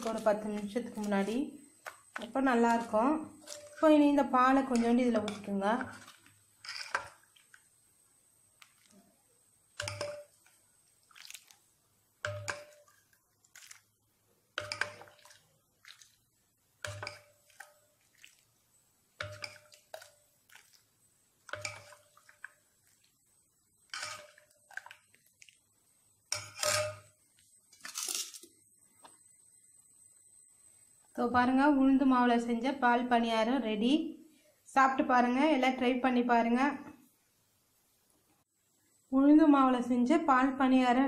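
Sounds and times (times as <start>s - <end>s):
soft milk splashes: 9.8s - 11.7s, 12.3s - 14.0s, 14.6s - 18.6s, 19.2s - 25.8s.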